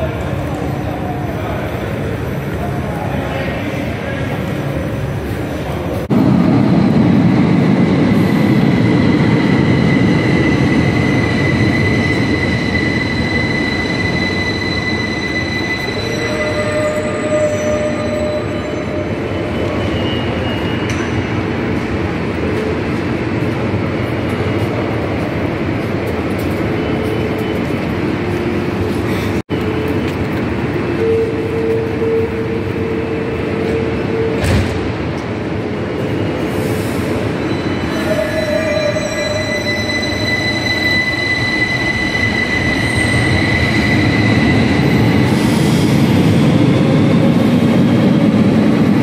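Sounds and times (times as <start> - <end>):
metro train rumbling: 0.0 - 49.0.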